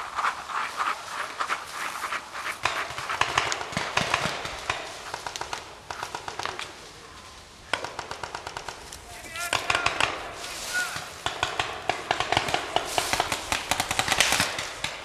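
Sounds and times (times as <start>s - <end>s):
footsteps crunching through dry leaves: 10.4s - 11.3s, 12.8s - 13.5s.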